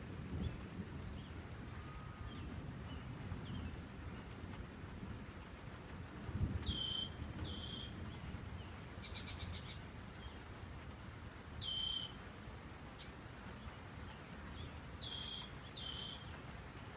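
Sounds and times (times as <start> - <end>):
bird calling: 11.6 - 12.2, 15.0 - 16.4.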